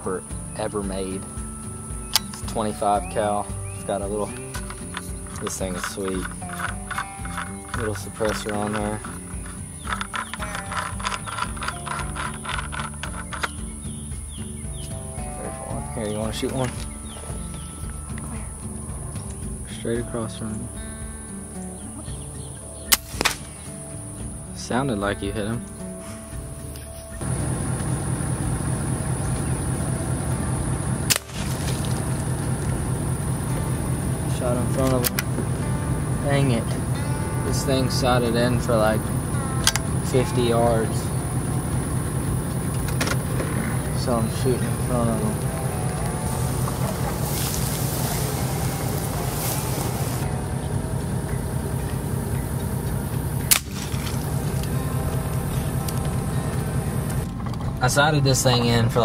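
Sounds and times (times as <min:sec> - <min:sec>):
low rumbling noise: 0:00.0 - 0:59.0
air rifle shot: 0:22.9 - 0:23.8, 0:31.0 - 0:31.9, 0:53.4 - 0:54.3.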